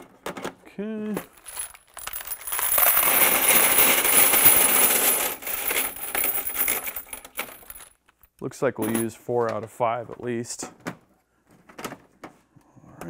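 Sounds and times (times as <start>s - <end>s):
metal cartridge cases clattering: 1.2s - 8.0s.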